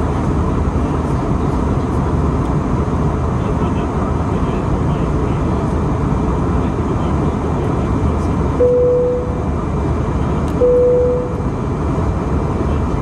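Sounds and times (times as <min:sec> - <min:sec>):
airplane cabin engine roar: 0:00.0 - 0:13.0
cabin chime ding: 0:10.6 - 0:11.4.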